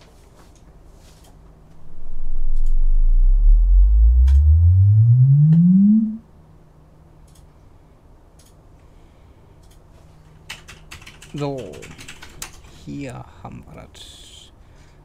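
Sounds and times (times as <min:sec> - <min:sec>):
subwoofer bass sweep rising: 0:01.8 - 0:06.2.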